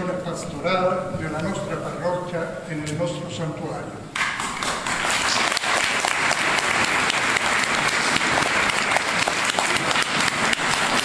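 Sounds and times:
crowd applauding: 4.2s - 11.0s.

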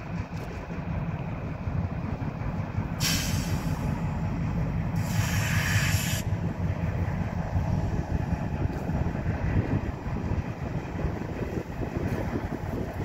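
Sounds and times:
locomotive engine rumbling: 0.0s - 13.0s
air hiss bursts: 3.0s - 3.9s, 5.0s - 6.3s.

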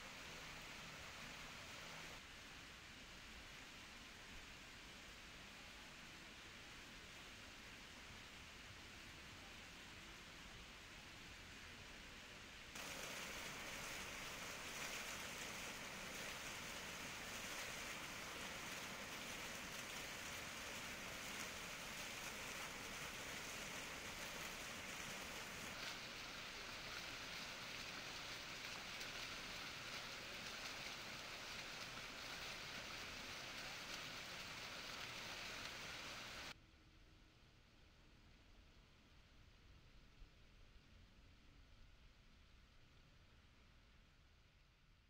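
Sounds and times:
water spraying hiss: 0.0s - 2.3s, 12.8s - 36.6s.

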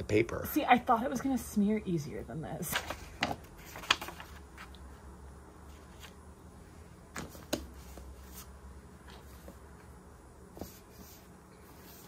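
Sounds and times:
low steady hum: 0.0s - 12.0s
paper rustling: 2.7s - 4.7s.

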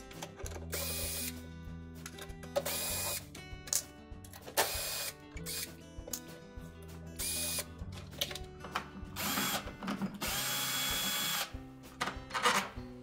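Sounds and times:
drill motor whining: 9.2s - 9.6s, 10.2s - 11.5s.

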